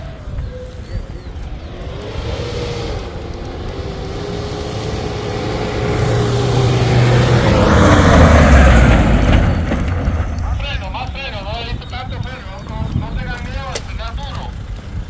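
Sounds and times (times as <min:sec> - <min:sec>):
pickup truck engine: 0:00.0 - 0:15.0
rough rushing noise: 0:00.9 - 0:11.7.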